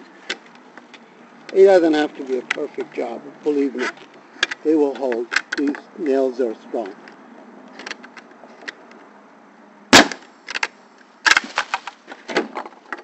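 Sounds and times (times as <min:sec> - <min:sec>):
nail gun firing: 0:10.0 - 0:10.2.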